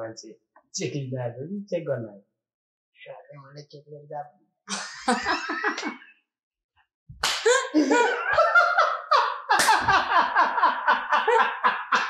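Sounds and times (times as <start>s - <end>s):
man and woman laughing: 4.7s - 6.0s, 7.5s - 12.0s.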